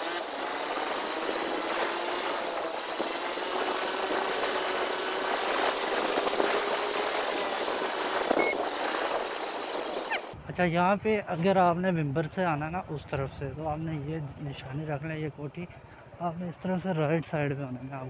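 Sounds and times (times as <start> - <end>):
road and wind noise: 0.0 - 10.4.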